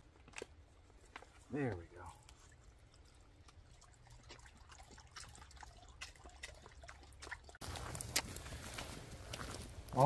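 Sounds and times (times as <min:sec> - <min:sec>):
small clicks and splashes: 0:00.2 - 0:08.5
water trickling into a bowl: 0:02.0 - 0:07.6.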